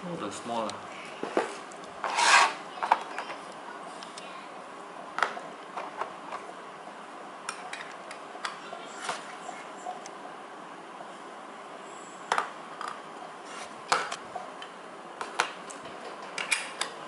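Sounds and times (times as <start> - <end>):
plastic packaging rubbing on table: 2.0 - 2.6.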